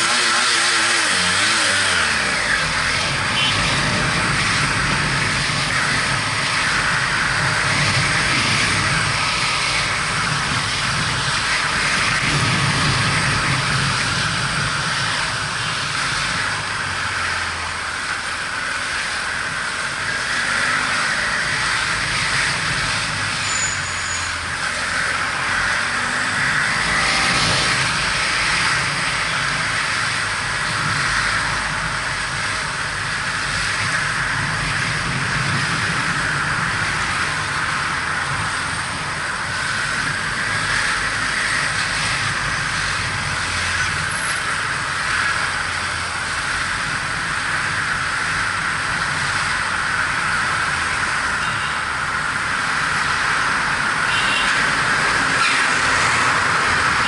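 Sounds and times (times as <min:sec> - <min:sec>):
wind rushing over camera: 0:02.2 - 0:17.4.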